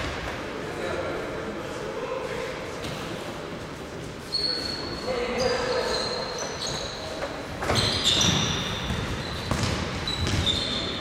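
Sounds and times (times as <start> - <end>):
sneakers squeaking on wooden floor: 4.3 - 11.0.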